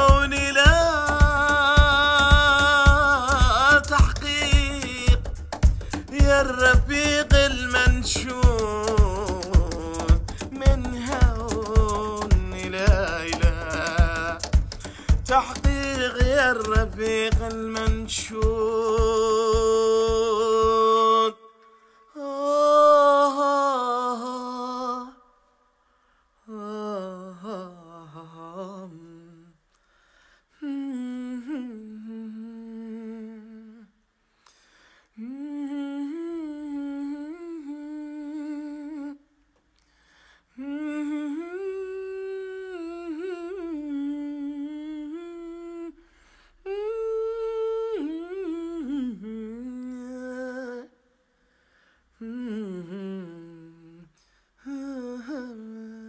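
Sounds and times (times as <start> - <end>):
person humming a melody: 0.0 - 21.4, 35.2 - 39.3, 40.6 - 46.0, 46.6 - 51.0, 52.2 - 56.0.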